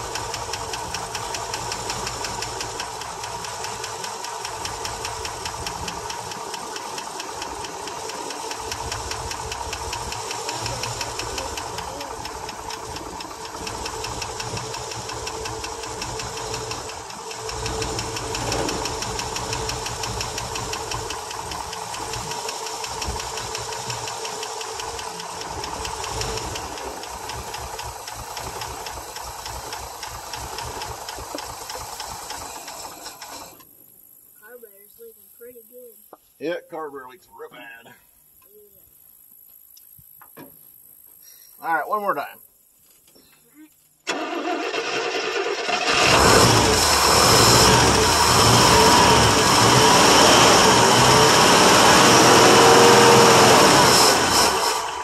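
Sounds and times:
rapid lifter ticking: 0.0 - 33.4
engine running: 0.0 - 33.7, 44.1 - 55.0.

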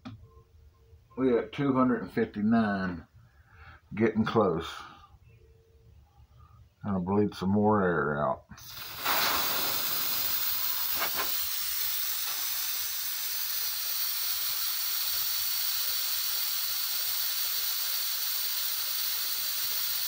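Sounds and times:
gas hissing from canister: 8.6 - 20.0.

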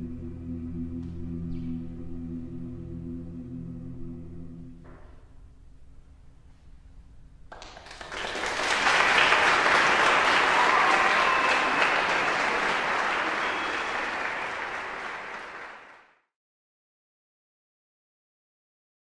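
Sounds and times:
audience applauding: 7.5 - 16.2.

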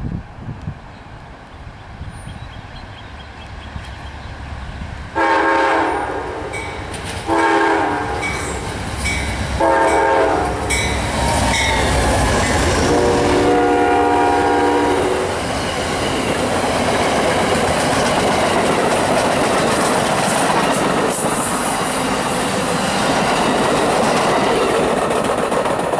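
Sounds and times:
train horn blasts: 5.2 - 6.7, 7.3 - 8.6, 9.6 - 15.4
train cars clattering on rails: 6.5 - 13.6, 15.4 - 25.9.

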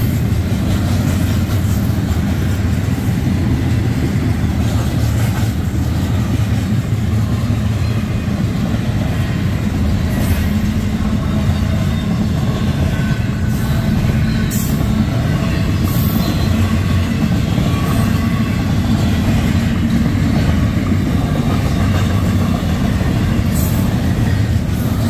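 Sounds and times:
freight train wheels rolling on rail: 0.0 - 25.0.

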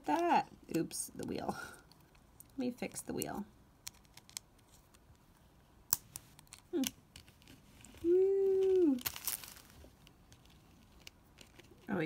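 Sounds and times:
woman humming: 6.7 - 7.0, 8.0 - 9.0.

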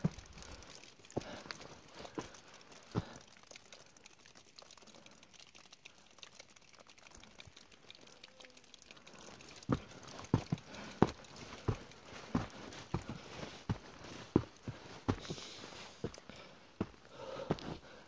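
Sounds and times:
footsteps on dirt trail: 1.2 - 2.4, 9.7 - 18.0.

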